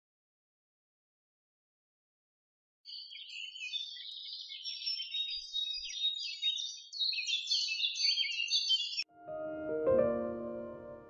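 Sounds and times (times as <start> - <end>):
songbirds chirping: 2.9 - 9.1.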